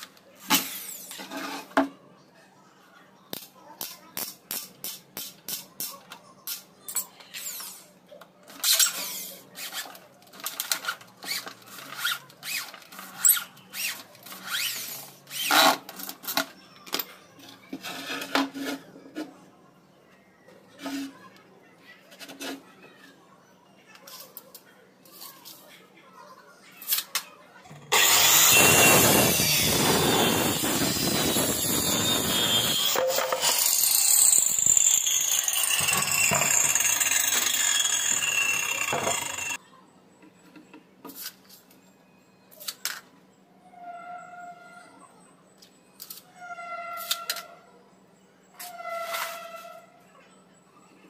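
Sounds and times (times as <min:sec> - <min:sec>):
electric wood router whining: 0:27.8 - 0:39.6
electric drill into plywood: 0:27.9 - 0:39.6.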